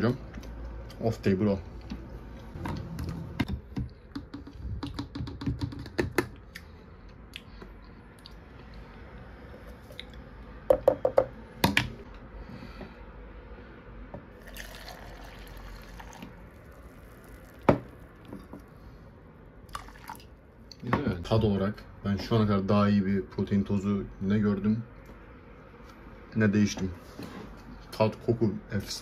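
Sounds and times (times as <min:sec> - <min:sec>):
powder pouring hiss: 0:14.5 - 0:18.2.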